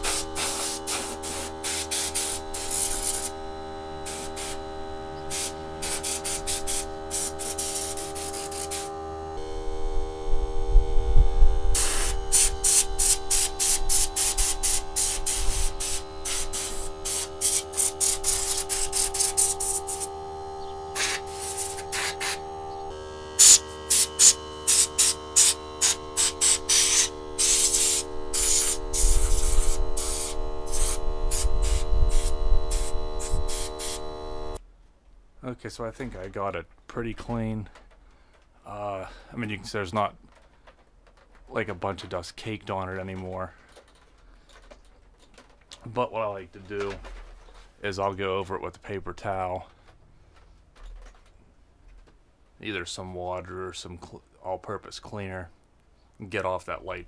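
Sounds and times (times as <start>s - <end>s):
compressed air blasts hissing: 0.0s - 9.0s, 11.6s - 34.6s
steady hum: 0.0s - 34.6s.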